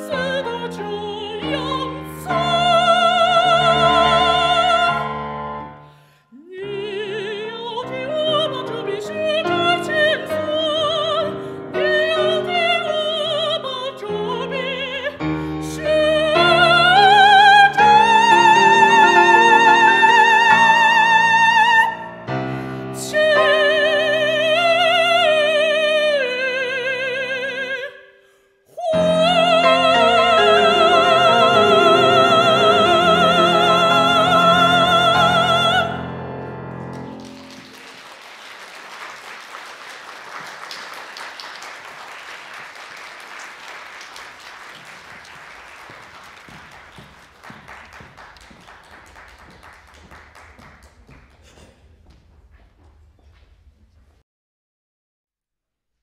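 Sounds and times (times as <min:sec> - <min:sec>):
operatic voice singing: 0:00.0 - 0:05.2, 0:06.3 - 0:22.1, 0:22.9 - 0:28.0, 0:28.7 - 0:36.2
piano: 0:00.0 - 0:54.2
audience applause: 0:36.8 - 0:52.9.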